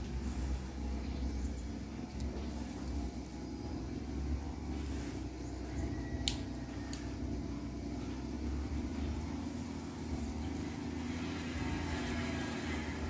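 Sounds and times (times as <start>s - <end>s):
low mechanical hum: 0.0s - 13.0s
light clicks of control cable: 6.2s - 7.1s.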